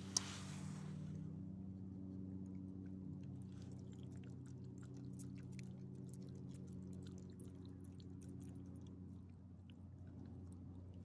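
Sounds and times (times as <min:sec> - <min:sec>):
steady low hum: 0:00.0 - 0:11.0
dog chewing food: 0:02.5 - 0:11.0.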